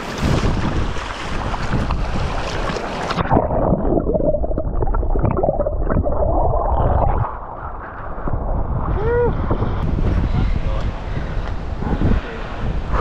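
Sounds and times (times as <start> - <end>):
water splashing at surface: 0.0 - 7.7
muffled underwater gurgling: 3.2 - 9.4.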